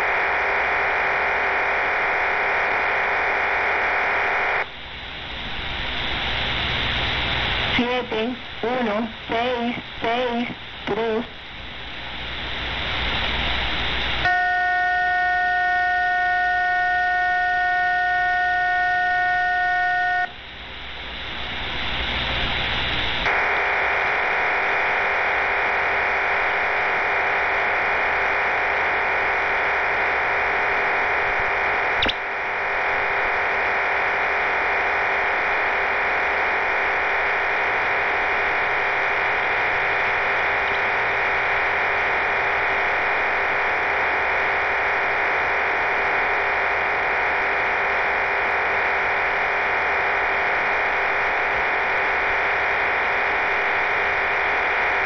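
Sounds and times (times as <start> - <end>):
radio static hiss: 0.0 - 55.0
steady radio tones: 0.0 - 55.0
single click: 32.0 - 32.2.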